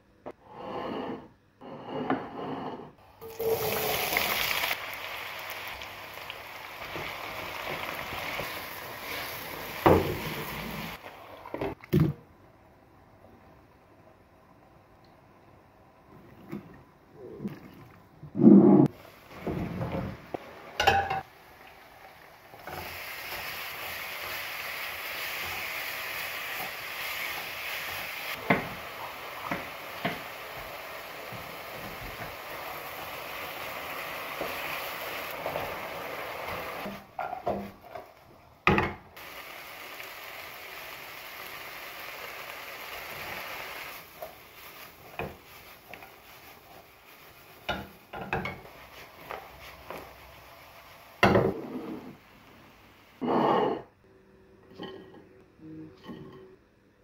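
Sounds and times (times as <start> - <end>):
chicken sizzling in a pan: 3.4 - 11.4, 18.9 - 37.8, 39.2 - 53.2
utensil clanking on pan: 20.8 - 21.3.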